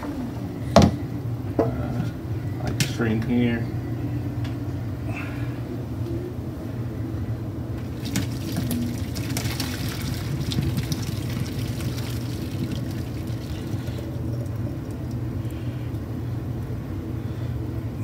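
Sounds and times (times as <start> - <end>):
steady low hum: 0.0 - 18.0
water draining into colander: 7.8 - 16.0.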